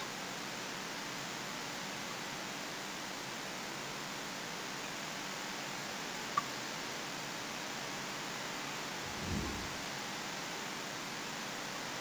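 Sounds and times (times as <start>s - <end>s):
steady hiss: 3.0s - 12.0s.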